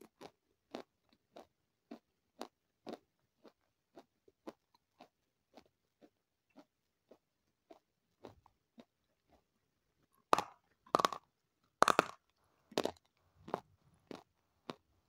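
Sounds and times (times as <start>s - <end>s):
soft chewing: 0.0s - 15.0s
loud crunching bites: 10.4s - 11.2s, 11.8s - 12.2s.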